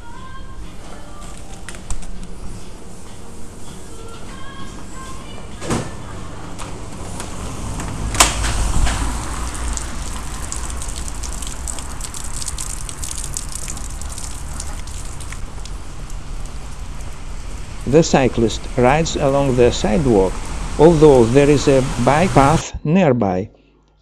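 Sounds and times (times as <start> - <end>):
rain on wet pavement: 8.2 - 22.6.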